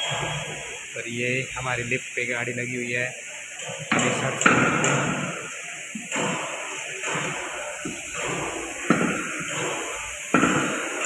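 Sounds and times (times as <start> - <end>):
tools knocking and scraping: 3.6 - 5.3, 6.0 - 11.0.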